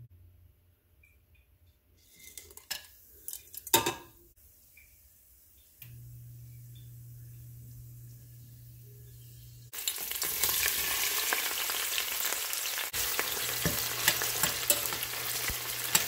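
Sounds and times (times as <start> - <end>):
steady low hum: 5.8 - 9.7
spices clattering against metal pot: 13.0 - 16.0.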